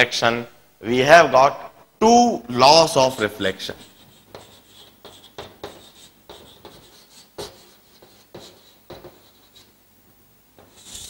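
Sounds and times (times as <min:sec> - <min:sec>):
chalk scratching on blackboard: 0:03.8 - 0:09.8, 0:10.6 - 0:11.0.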